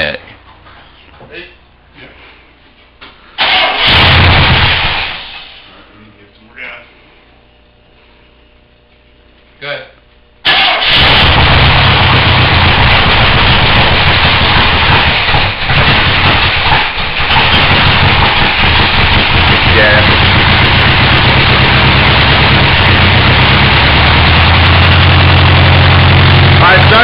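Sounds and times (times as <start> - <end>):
car engine running loud: 3.5 - 5.2, 10.5 - 27.0.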